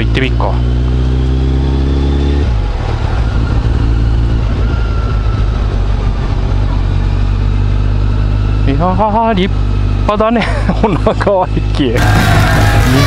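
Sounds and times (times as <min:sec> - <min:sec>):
motorcycle engine running: 0:00.0 - 0:13.0
wind rush: 0:02.4 - 0:07.4.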